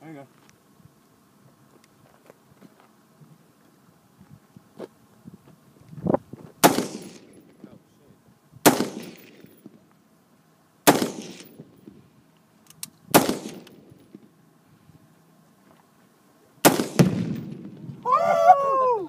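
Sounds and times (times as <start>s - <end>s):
rifle shots with rolling echo: 6.6s - 7.6s, 8.6s - 9.8s, 10.8s - 12.0s, 13.1s - 14.3s, 16.6s - 18.0s.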